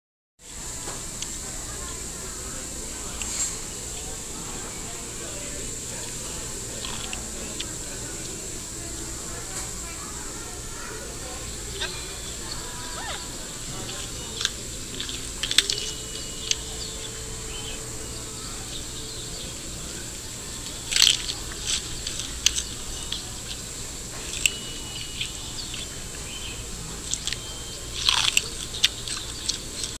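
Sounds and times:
bamboo chewing crunches: 0:06.2 - 0:07.8, 0:11.8 - 0:30.0.

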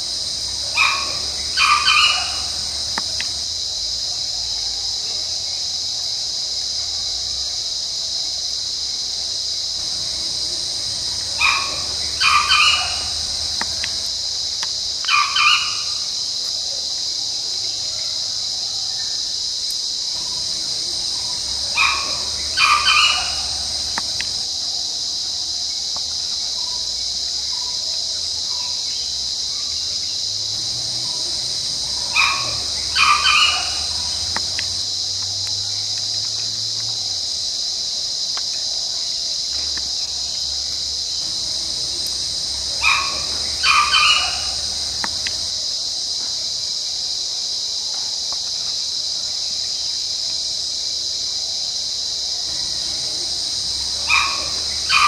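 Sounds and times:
rooster crowing: 0:00.0 - 0:03.4, 0:09.8 - 0:14.1, 0:15.1 - 0:16.0, 0:20.2 - 0:24.4, 0:30.7 - 0:34.8, 0:41.2 - 0:45.5, 0:52.6 - 0:55.0
insects droning: 0:00.0 - 0:55.0.

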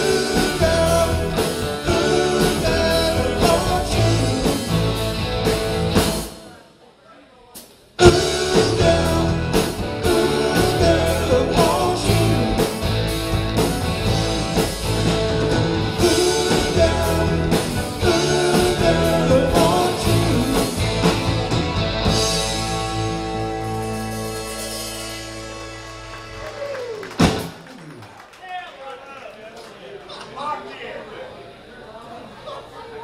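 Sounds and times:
live rock band playing: 0:00.0 - 0:06.5, 0:08.0 - 0:27.7.

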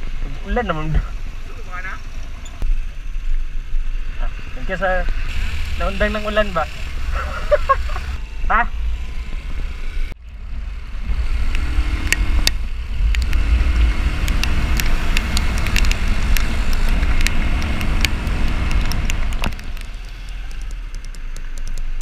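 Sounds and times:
motorcycle engine: 0:00.0 - 0:21.8
wind rumble on microphone: 0:08.1 - 0:22.0
sharp ticks: 0:11.4 - 0:13.5, 0:14.2 - 0:22.0.

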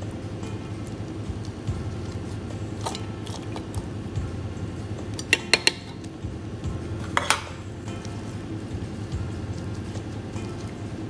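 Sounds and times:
steady low hum: 0:00.0 - 0:11.0
metal pan and utensils clinking: 0:05.2 - 0:06.1, 0:07.0 - 0:07.7.

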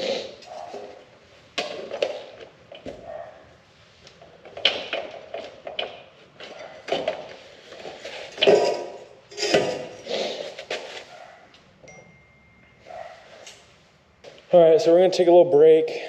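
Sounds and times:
metal tools clanking: 0:05.7 - 0:10.1.

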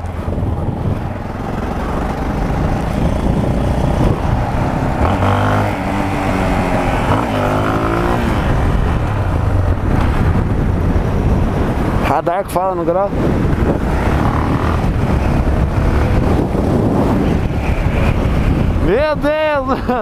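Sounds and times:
motorcycle engine running hard: 0:00.0 - 0:20.0
wind rush: 0:00.0 - 0:20.0.

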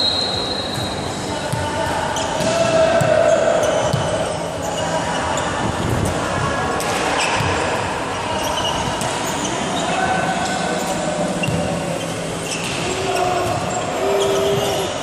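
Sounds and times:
murmur of voices: 0:00.0 - 0:15.0
ball bouncing on court floor: 0:02.4 - 0:04.2, 0:11.4 - 0:11.7.

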